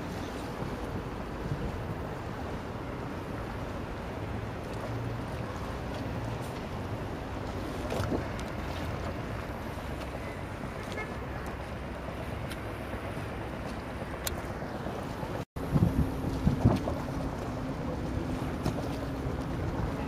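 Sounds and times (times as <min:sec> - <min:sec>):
lapping sea water: 0:00.0 - 0:20.0
wind on microphone: 0:00.0 - 0:20.0.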